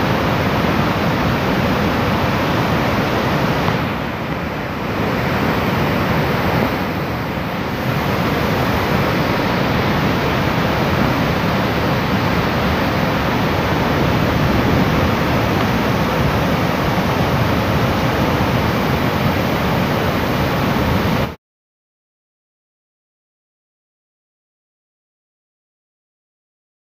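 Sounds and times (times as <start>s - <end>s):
roar of rushing water: 0.0s - 21.4s.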